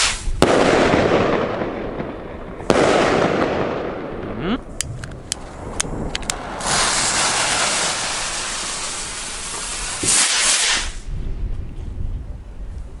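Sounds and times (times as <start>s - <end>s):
firework fuse hissing: 0.0s - 0.4s, 6.3s - 11.1s
rocket motor sharp hiss: 0.0s - 0.4s, 6.5s - 11.1s.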